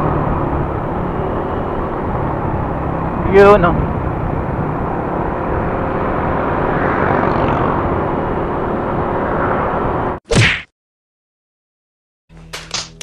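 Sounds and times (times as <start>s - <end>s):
rushing wind: 0.0s - 10.2s
scooter engine drone: 0.0s - 10.2s.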